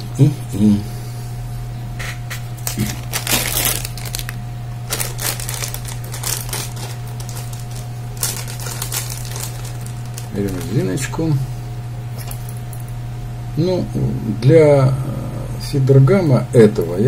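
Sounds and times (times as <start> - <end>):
steady low hum: 0.0 - 17.0
plastic packaging crinkling: 2.6 - 11.2.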